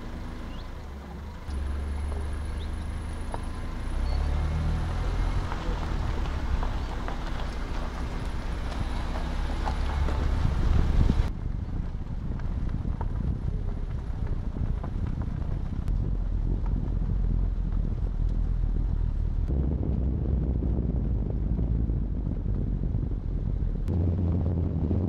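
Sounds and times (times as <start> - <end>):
car engine and road noise: 0.0 - 25.0.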